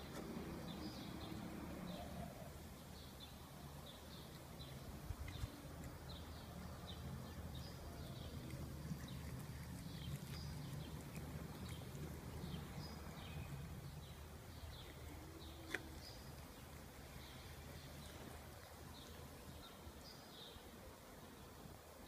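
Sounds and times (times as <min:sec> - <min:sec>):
small birds chirping: 0:00.0 - 0:21.6
cat chewing food: 0:04.0 - 0:19.5.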